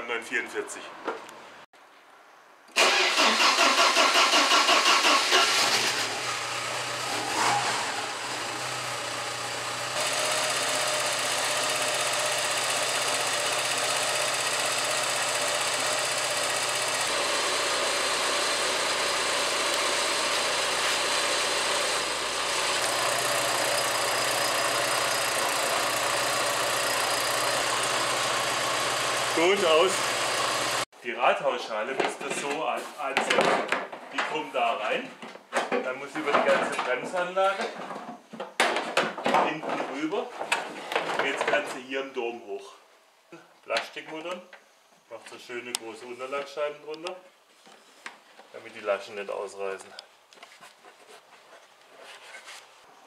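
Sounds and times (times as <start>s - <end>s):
engine starter cranking: 2.7s - 8.3s.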